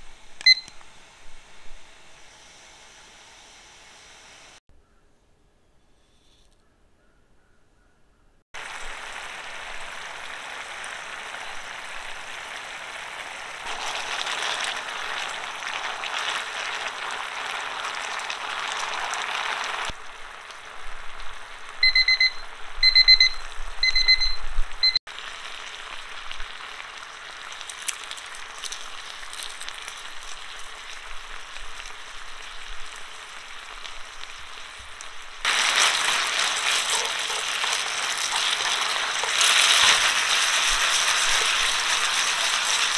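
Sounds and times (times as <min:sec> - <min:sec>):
timer alarm beeps: 0:00.4 - 0:00.7, 0:21.8 - 0:25.0
pasta sizzling in pan: 0:08.6 - 0:23.8, 0:24.5 - 0:42.9
pasta bubbling in pan: 0:08.6 - 0:23.9, 0:25.1 - 0:42.9.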